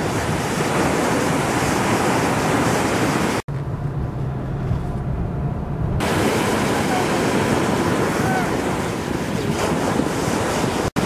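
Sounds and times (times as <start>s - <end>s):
waves crashing over a seawall: 0.0s - 3.4s, 6.0s - 11.0s
wind on microphone: 0.0s - 11.0s
low rumble: 3.5s - 8.0s.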